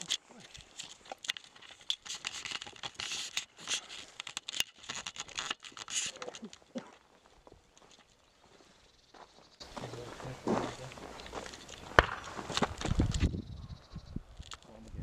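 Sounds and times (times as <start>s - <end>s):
footsteps rustling through grass: 7.2s - 13.3s.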